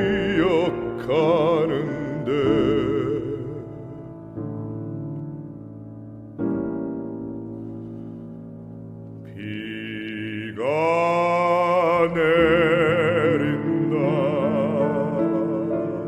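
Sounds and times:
baritone singing with vibrato: 0:00.0 - 0:04.4, 0:09.2 - 0:16.0.

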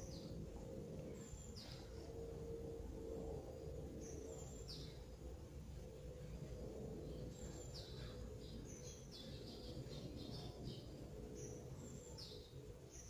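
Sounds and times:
small birds chirping: 0:00.0 - 0:02.2, 0:03.9 - 0:05.2, 0:06.2 - 0:13.0
steady low hum: 0:00.0 - 0:13.0.

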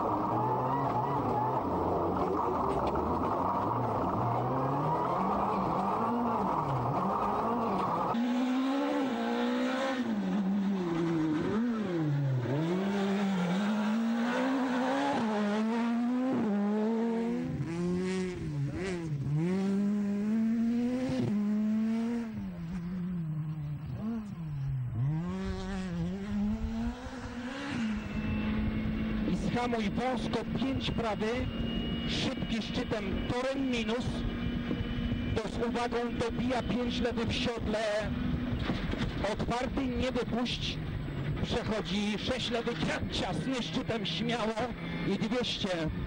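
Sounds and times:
rally car engine revving: 0:00.0 - 0:46.0.

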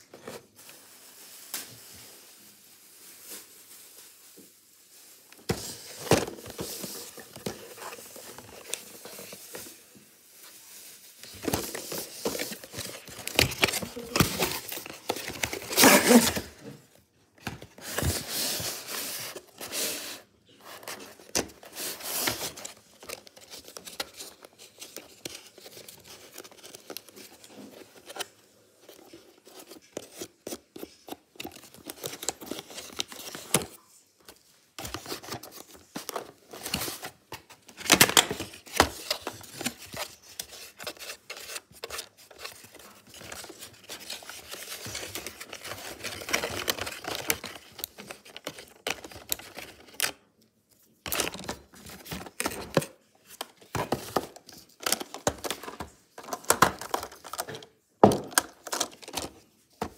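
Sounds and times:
cardboard rustling and tearing: 0:11.0 - 0:16.6, 0:17.4 - 0:50.1.

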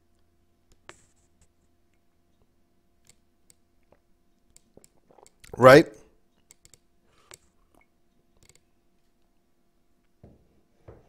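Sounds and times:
faint clicks: 0:06.4 - 0:09.4.

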